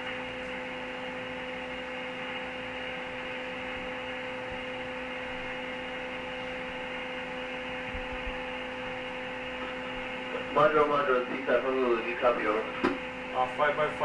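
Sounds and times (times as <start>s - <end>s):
steady hum tone: 0.0s - 14.0s
radio static hiss: 9.6s - 14.0s.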